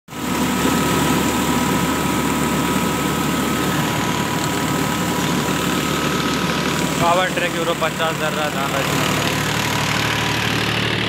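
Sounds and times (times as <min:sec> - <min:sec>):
rice mill machine whirring: 0:00.1 - 0:11.0
tractor diesel engine running: 0:00.1 - 0:11.0.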